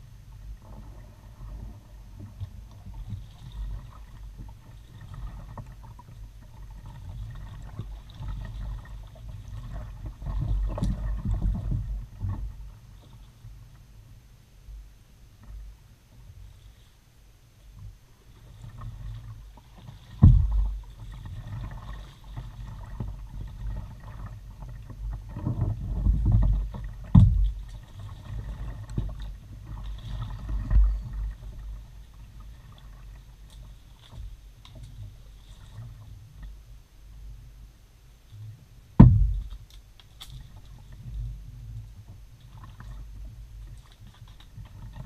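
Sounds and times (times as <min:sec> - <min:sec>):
low rumble from kayak hull: 0:00.0 - 0:45.0
paddle strokes splashing: 0:00.6 - 0:13.4, 0:18.2 - 0:36.5, 0:39.0 - 0:45.0
dull thumps: 0:20.2 - 0:20.8, 0:27.0 - 0:27.6, 0:39.0 - 0:39.6.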